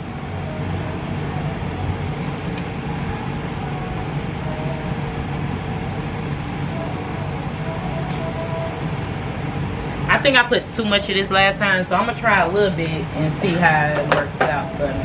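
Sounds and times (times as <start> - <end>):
low machine hum with hiss: 0.0 - 15.0.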